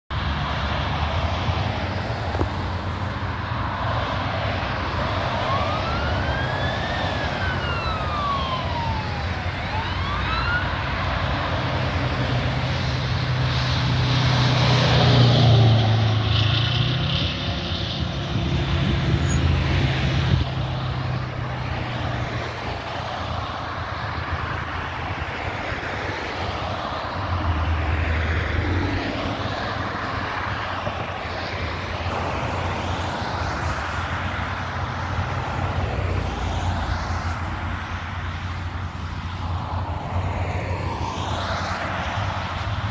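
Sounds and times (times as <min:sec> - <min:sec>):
highway traffic: 0:00.1 - 0:42.9
truck engine rumbling: 0:00.2 - 0:25.8
fire engine siren wailing: 0:03.3 - 0:42.9.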